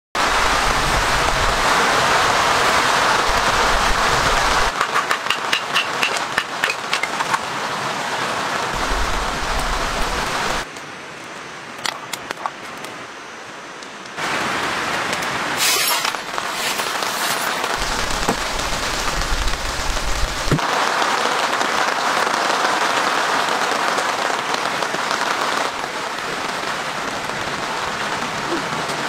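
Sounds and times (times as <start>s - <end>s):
heavy rain hiss: 0.2s - 11.7s, 13.0s - 29.0s
wood fire crackling: 14.8s - 20.7s
kindling being split: 15.0s - 18.6s.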